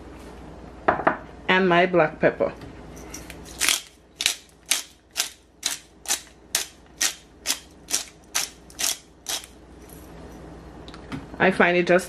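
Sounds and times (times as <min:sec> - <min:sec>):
pepper mill grinding: 0:03.2 - 0:09.6.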